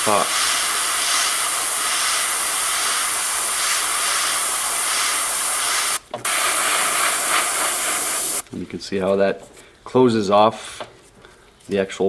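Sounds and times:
airbrush spraying paint: 0.0 - 8.4.

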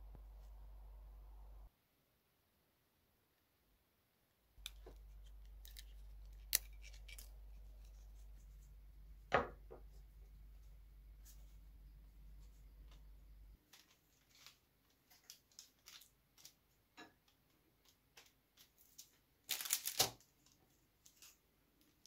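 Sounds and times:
faint steady hum: 0.0 - 14.9.

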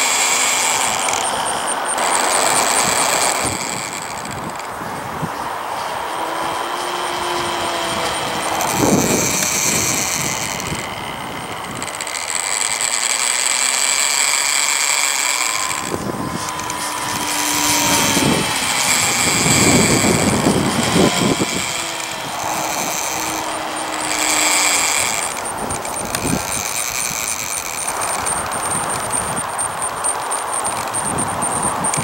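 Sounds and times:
high-pitched whir: 0.0 - 32.0
model airplane motor drone: 0.0 - 32.0
wind buffeting microphone: 1.4 - 12.2, 15.4 - 30.0.

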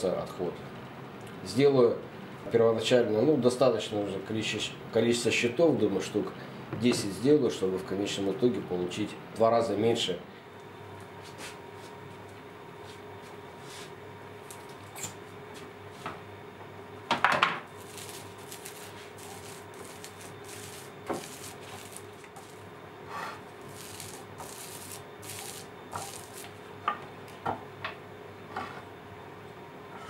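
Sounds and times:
plastic spreader rubbing glue: 17.9 - 22.6.

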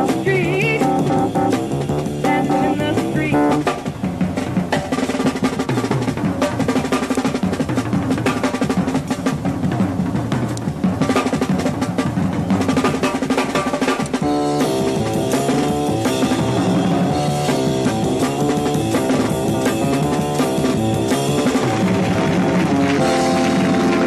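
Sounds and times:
bass guitar: 0.0 - 3.7, 14.2 - 24.0
sustained keyboard chords: 0.0 - 3.8, 14.2 - 24.0
drum kit fills: 0.0 - 24.0.

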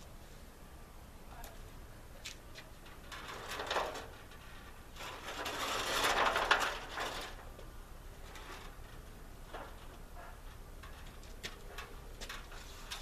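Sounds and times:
metal stepladder rattling and scraping: 2.8 - 7.5, 8.2 - 13.0.

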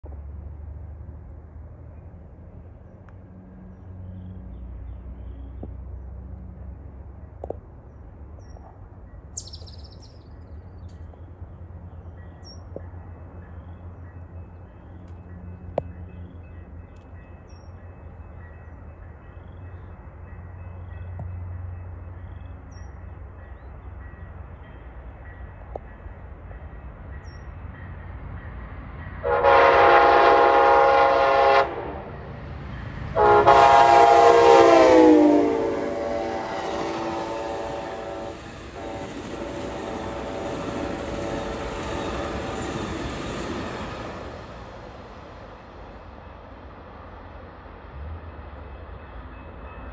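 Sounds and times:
train wheels on rails: 3.0 - 49.9
locomotive horn blasts: 29.2 - 32.2, 33.1 - 42.0.

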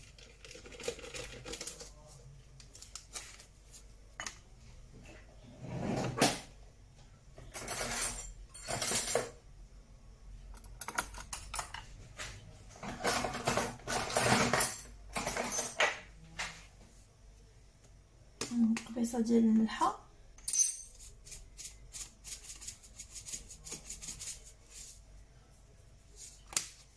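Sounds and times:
utensils clattering and rustling: 7.4 - 9.4, 12.7 - 16.1.

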